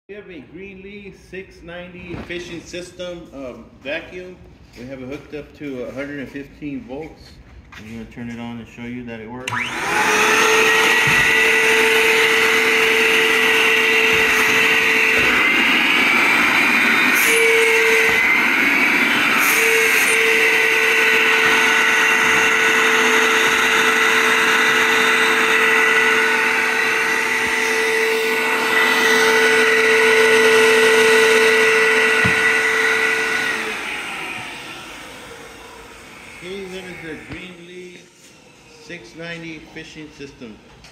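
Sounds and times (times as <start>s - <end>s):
vacuum blower motor whining: 9.4s - 40.4s.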